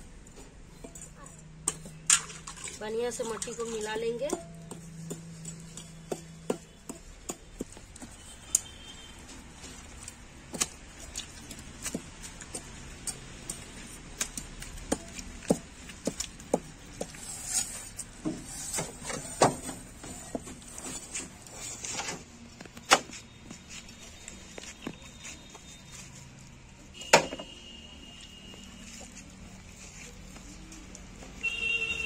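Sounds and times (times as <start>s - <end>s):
hands squishing wet clay: 7.0s - 18.0s.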